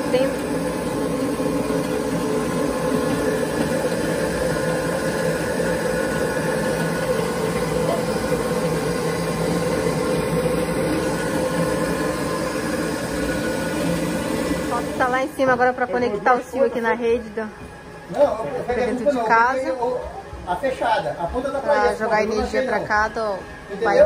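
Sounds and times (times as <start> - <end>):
pulping machine motor running: 0.0 - 24.0.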